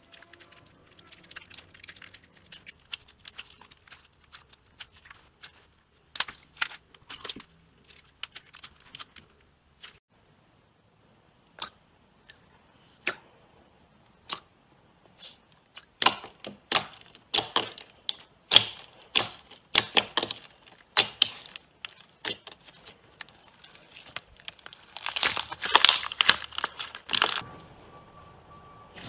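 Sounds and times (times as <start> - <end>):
slime popping and clicking: 15.8 - 23.3, 24.0 - 27.4.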